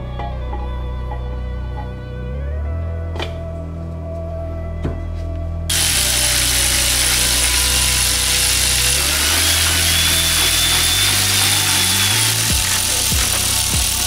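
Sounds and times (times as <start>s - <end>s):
background music with bass: 0.0s - 14.0s
electric ratchet whining: 5.7s - 14.0s.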